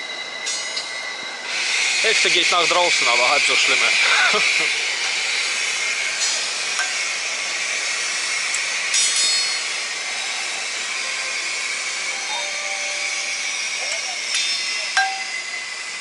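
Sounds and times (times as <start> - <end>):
water rushing from hose: 1.5 - 16.0
metallic clink: 8.9 - 9.6, 14.3 - 15.4.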